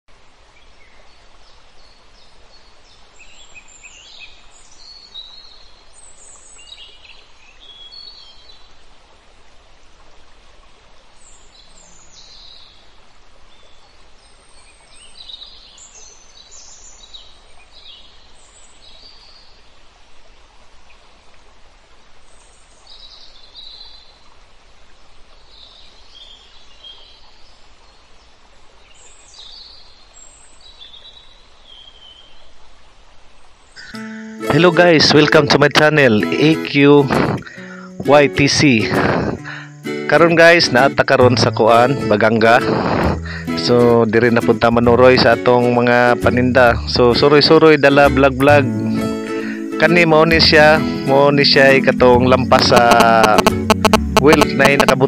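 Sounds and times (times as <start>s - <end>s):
river water rushing: 17.2s - 55.0s
birds chirping: 33.7s - 55.0s.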